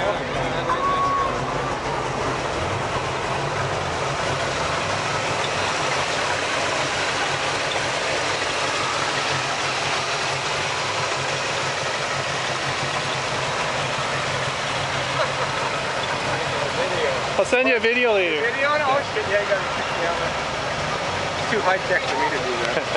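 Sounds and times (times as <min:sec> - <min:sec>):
car engine idling: 0:00.0 - 0:22.9.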